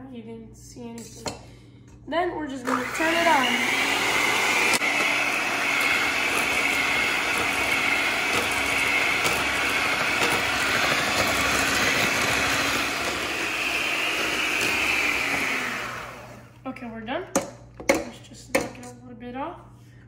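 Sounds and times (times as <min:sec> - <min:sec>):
electric hand mixer whining: 0:02.6 - 0:16.6.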